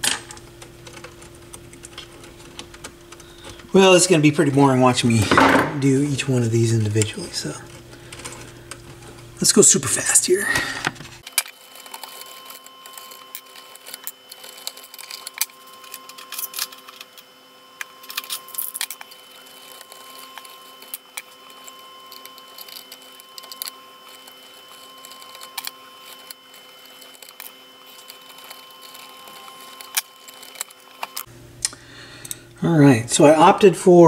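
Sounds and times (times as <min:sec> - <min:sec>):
faint steady hum: 0:00.0 - 0:34.0.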